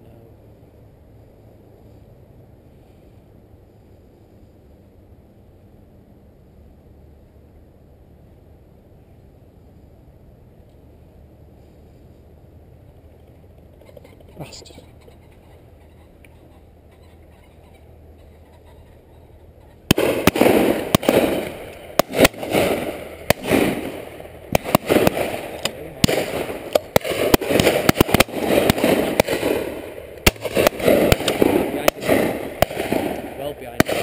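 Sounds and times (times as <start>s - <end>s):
shotgun shots: 19.9s - 34.0s.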